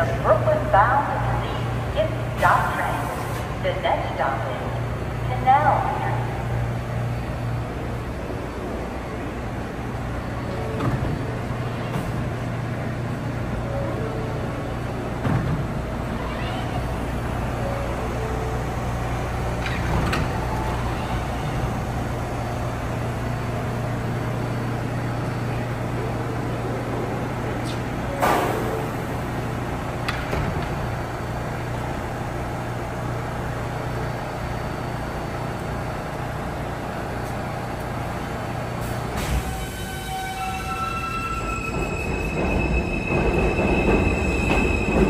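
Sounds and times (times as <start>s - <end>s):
subway train humming: 0.0s - 45.0s
knocks and clunks: 15.2s - 15.8s.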